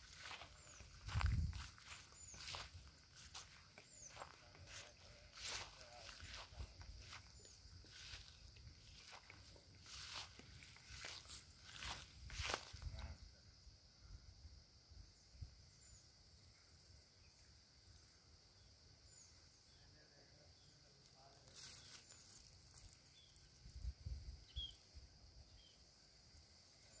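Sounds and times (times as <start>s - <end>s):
faint bird chirps: 0.0s - 12.0s, 18.5s - 25.9s
high insect drone: 0.0s - 27.0s.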